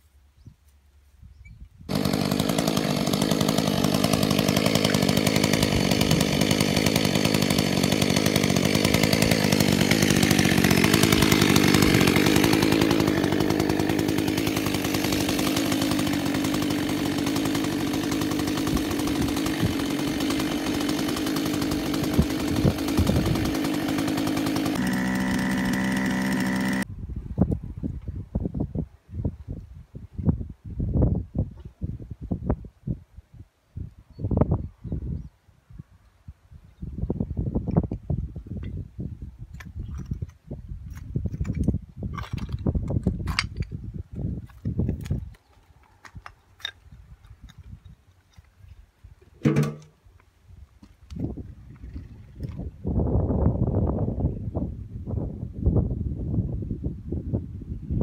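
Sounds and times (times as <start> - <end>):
chainsaw cutting roots: 1.9 - 26.9, 39.6 - 48.6, 49.3 - 50.0.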